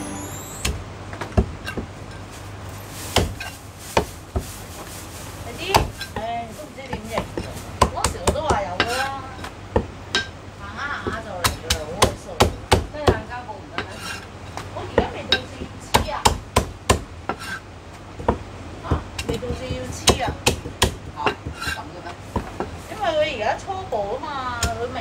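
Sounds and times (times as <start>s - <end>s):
cleaver chopping on wooden block: 16.0s - 17.6s.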